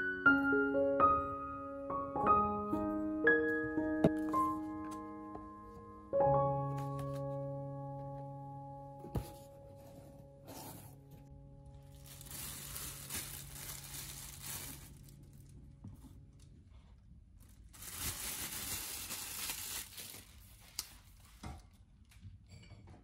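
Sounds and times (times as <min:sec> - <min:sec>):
paper crinkling and tearing: 0:11.7 - 0:15.7, 0:17.4 - 0:21.3.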